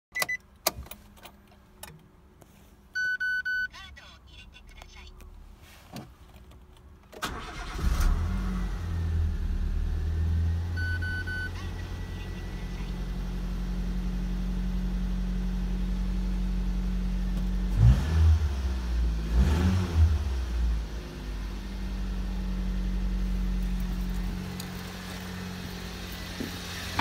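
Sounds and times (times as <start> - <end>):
engine starter cranking: 7.2 - 8.3
short electronic beep: 10.8 - 11.6
car engine idling: 20.3 - 27.0.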